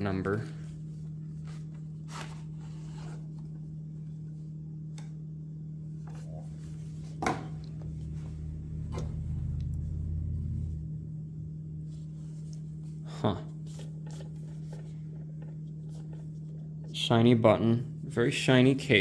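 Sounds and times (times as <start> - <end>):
steady low hum: 0.0 - 19.0
low handling rumble: 5.4 - 19.0.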